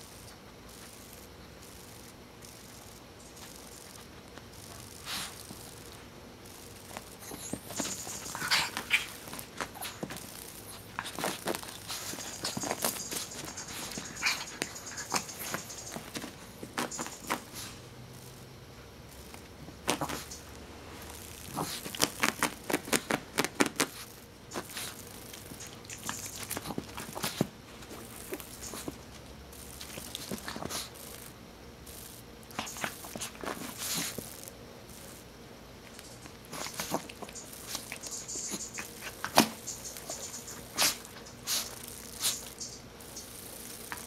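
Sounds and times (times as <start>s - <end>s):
dog claws clicking and scratching: 1.8s - 5.9s, 6.6s - 17.8s, 19.2s - 20.5s, 21.2s - 31.3s, 32.5s - 35.2s, 35.9s - 44.0s
paw taps and scuffs on carpet: 6.9s - 17.8s, 19.3s - 20.4s, 21.5s - 31.0s, 35.9s - 42.5s.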